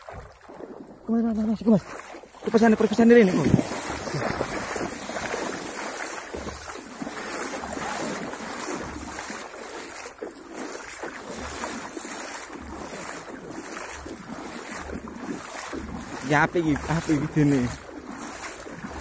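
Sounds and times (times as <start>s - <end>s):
water splashing around wading legs: 0.0s - 19.0s
wind rumble on microphone: 3.1s - 6.8s.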